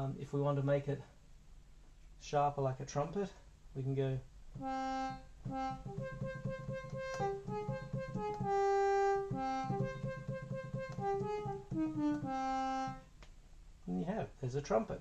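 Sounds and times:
brassy synthesizer melody: 4.6s - 13.1s.

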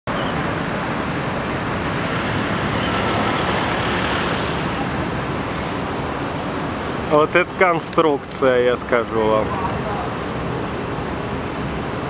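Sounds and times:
road traffic hum: 0.1s - 12.0s
thin high whine: 1.4s - 7.6s.

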